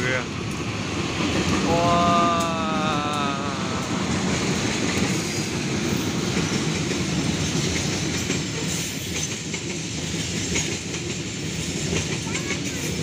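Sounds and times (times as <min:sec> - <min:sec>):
train wheels rumbling on rails: 0:03.5 - 0:13.0.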